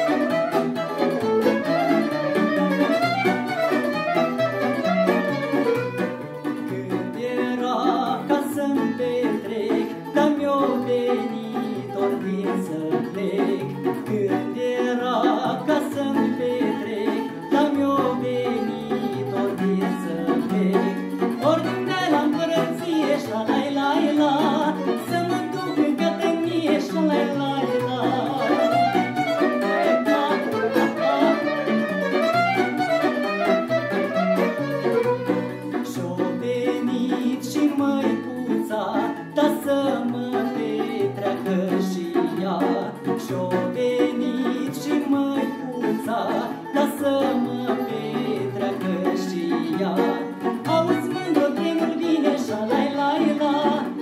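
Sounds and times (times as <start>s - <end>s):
clarinet: 0.0s - 6.9s, 14.8s - 37.4s
man singing: 0.0s - 54.0s
plucked lute: 0.0s - 54.0s
violins: 0.0s - 54.0s.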